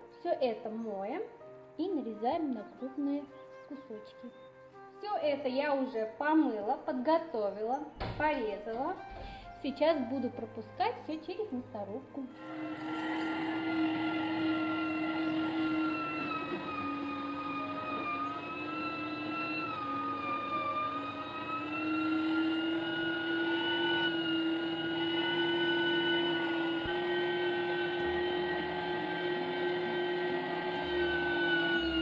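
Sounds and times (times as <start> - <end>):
electric meat grinder whining: 12.3 - 32.0.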